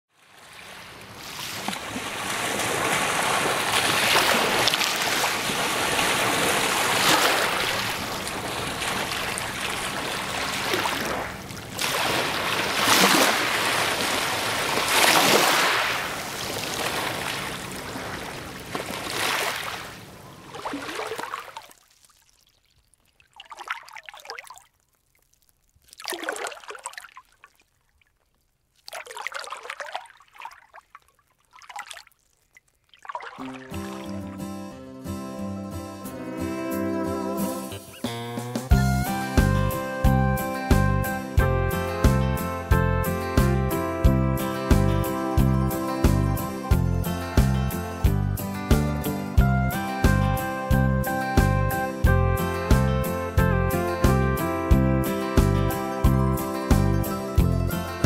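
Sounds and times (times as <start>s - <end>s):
water splashes: 0.1s - 34.4s
waves washing onto pebbles: 0.2s - 22.1s.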